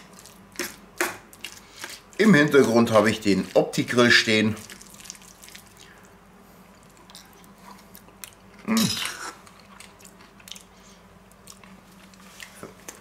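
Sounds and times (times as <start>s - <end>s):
low vocal grunt: 8.6s - 9.2s.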